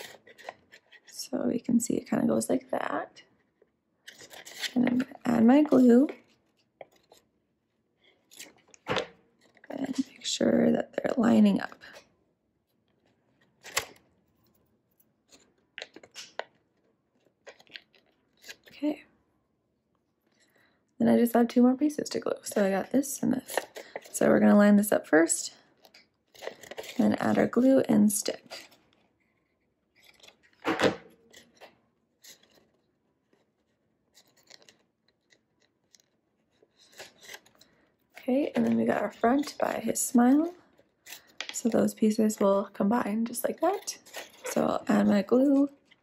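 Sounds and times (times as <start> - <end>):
card rustling and scraping: 0.0 - 1.4, 3.4 - 7.3, 8.0 - 10.4, 12.8 - 18.7, 23.3 - 24.5, 25.8 - 42.5, 43.2 - 46.0
paper crinkles and taps: 15.3 - 18.7, 30.0 - 37.7.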